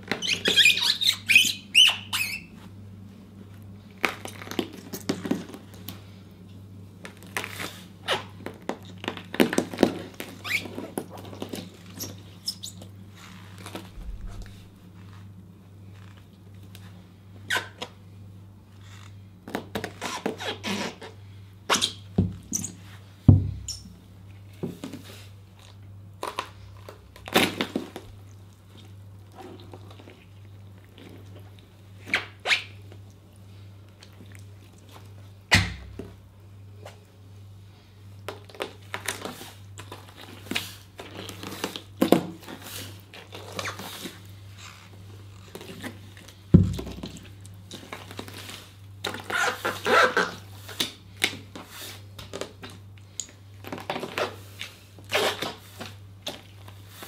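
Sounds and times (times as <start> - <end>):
low steady hum: 0.0 - 49.4
boot thuds: 23.3 - 23.7.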